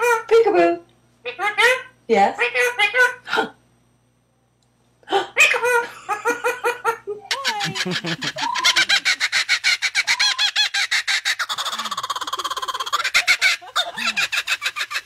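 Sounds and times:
kookaburra laughing call: 5.3 - 15.0
woman laughing: 5.7 - 9.4, 11.6 - 15.0.

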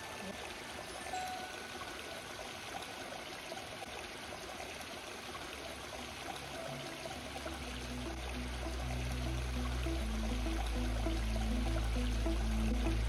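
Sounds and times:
creek water rushing and trickling: 0.0 - 13.0
low background music: 6.5 - 13.0.

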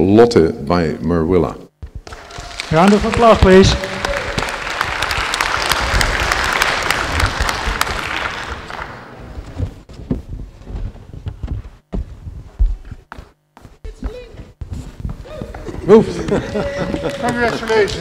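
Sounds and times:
audience applause: 2.0 - 9.4, 15.5 - 18.0.

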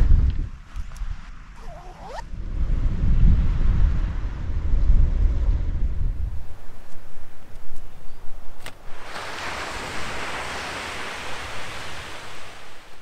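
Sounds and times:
wind buffeting microphone: 0.0 - 13.0
surf rushing: 8.7 - 13.0.

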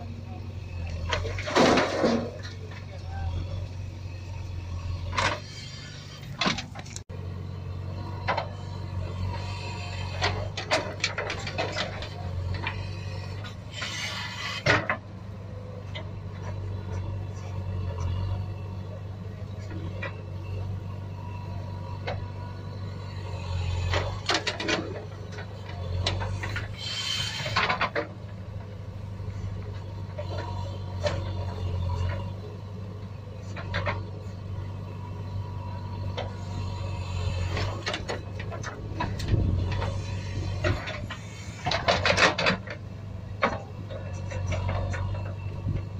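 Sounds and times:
toy loader scraping sand: 4.8 - 7.0, 8.5 - 14.9, 22.9 - 28.0.

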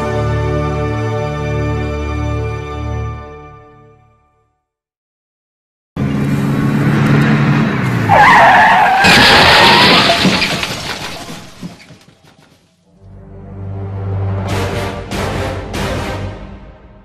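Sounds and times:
tyres squealing in a skid: 8.0 - 12.6
loud harsh crash with shattering: 9.0 - 12.0.

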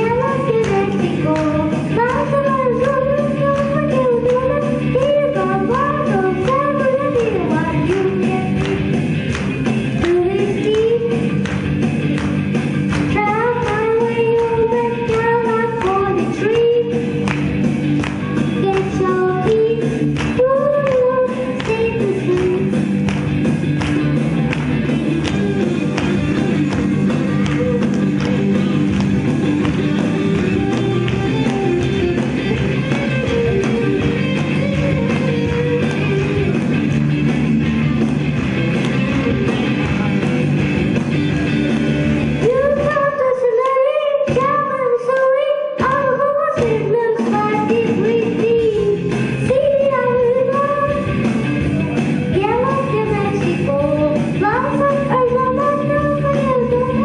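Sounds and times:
boy singing into a microphone: 0.0 - 8.8, 10.0 - 11.3, 13.1 - 17.2, 18.2 - 22.8, 42.4 - 51.1, 52.3 - 57.0
amplified music with steady beat: 0.0 - 42.6.

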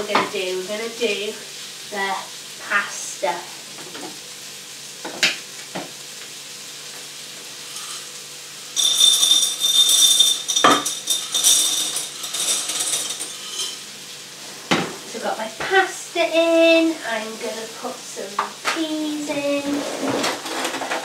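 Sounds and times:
dry pasta rattling pour: 7.6 - 13.9
glass jar clinks: 8.8 - 13.8.

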